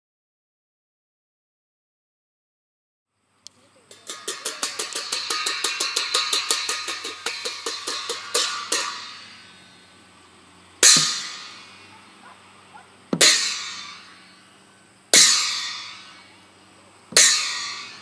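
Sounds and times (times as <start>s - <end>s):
hand cymbals clashing: 3.7s - 18.0s.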